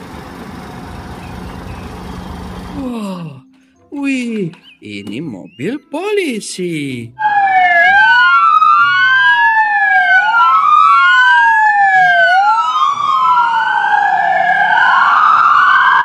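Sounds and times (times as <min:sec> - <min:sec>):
police siren wailing: 0:01.6 - 0:04.6, 0:07.2 - 0:16.0
fainter second siren: 0:07.2 - 0:16.0.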